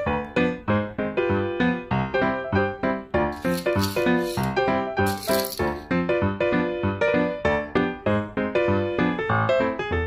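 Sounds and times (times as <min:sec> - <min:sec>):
dominoes clattering on wooden floor: 0:03.4 - 0:05.8.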